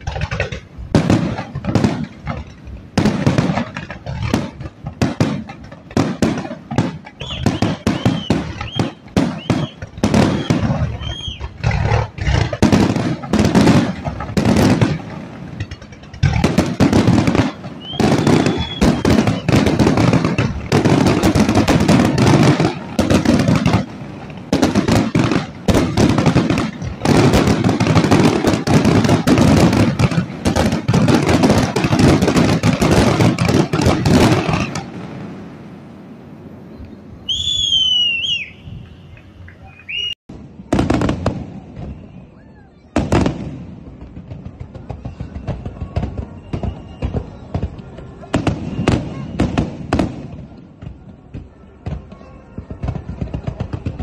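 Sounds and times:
fireworks bangs and crackling: 0:00.0 - 0:54.0
firework whistle: 0:07.0 - 0:15.0, 0:16.2 - 0:23.9, 0:36.7 - 0:40.2, 0:41.6 - 0:43.3, 0:44.9 - 0:50.1.

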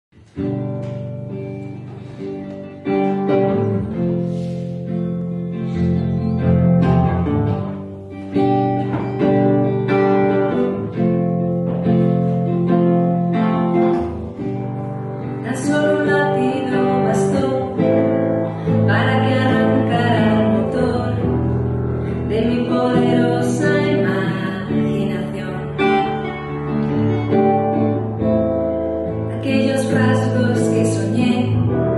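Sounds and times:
acoustic guitar: 0:00.1 - 0:31.9
person singing: 0:15.4 - 0:21.5, 0:22.1 - 0:26.2.

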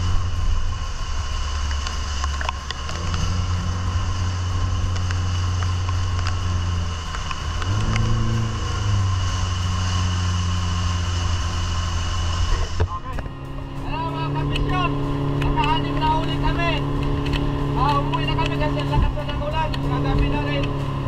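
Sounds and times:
outboard motor running: 0:00.0 - 0:21.0.

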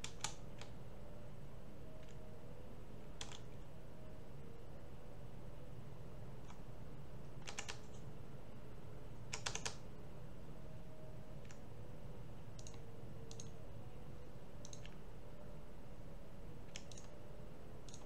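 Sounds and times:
keyboard and mouse clicks: 0:00.0 - 0:00.8, 0:02.0 - 0:02.2, 0:03.2 - 0:03.5, 0:07.4 - 0:08.0, 0:09.3 - 0:09.8, 0:11.4 - 0:11.6, 0:12.6 - 0:13.6, 0:14.6 - 0:15.0, 0:16.7 - 0:17.2
steady low hum: 0:00.0 - 0:18.0.

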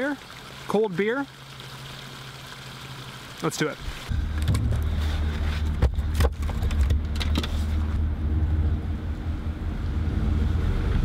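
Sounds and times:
engine humming: 0:04.1 - 0:11.0.

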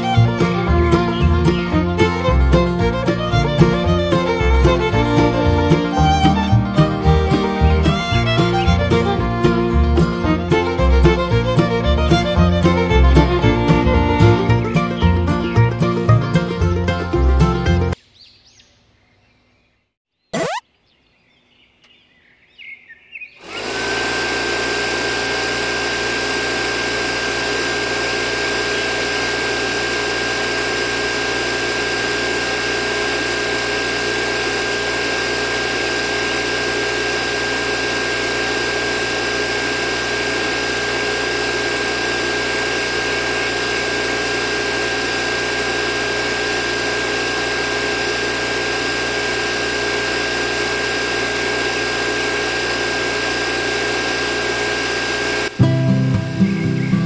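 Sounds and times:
small electric motor whining: 0:00.0 - 0:16.1, 0:20.4 - 0:20.6, 0:23.4 - 0:55.6.

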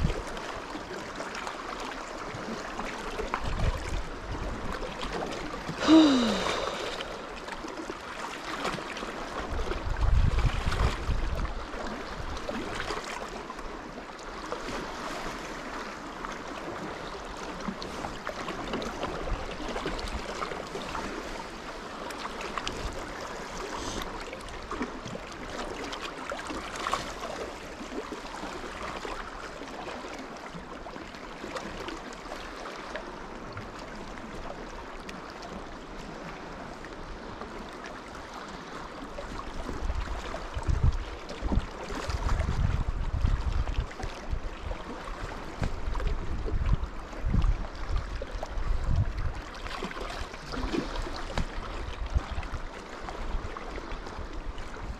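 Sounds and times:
small water splashes: 0:00.0 - 0:54.9
waves lapping against rocks: 0:00.0 - 0:54.9.

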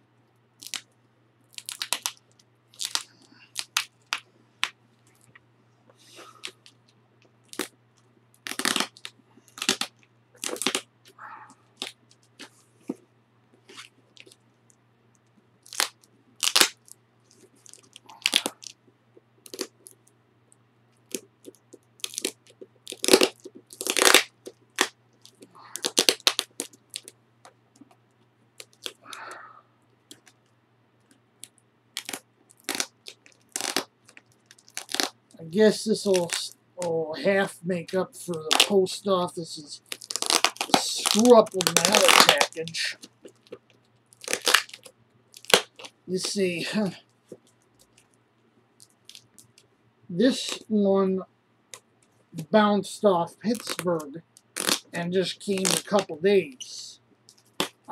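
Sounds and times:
tape crackling and ripping: 0:00.6 - 0:00.9, 0:01.5 - 0:05.3, 0:07.4 - 0:07.8, 0:08.4 - 0:11.2, 0:11.8 - 0:12.5, 0:13.6 - 0:14.4, 0:15.6 - 0:18.8, 0:19.4 - 0:20.1, 0:21.0 - 0:27.2, 0:28.6 - 0:29.3, 0:30.1 - 0:30.5, 0:31.4 - 0:36.6, 0:38.2 - 0:48.2, 0:48.8 - 0:50.7, 0:53.4 - 0:56.2, 0:57.3 - 0:57.9.

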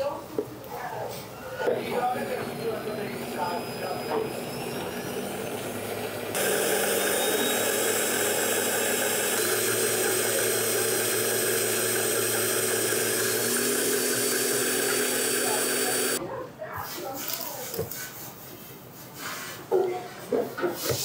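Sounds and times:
blender running: 0:01.7 - 0:16.2.

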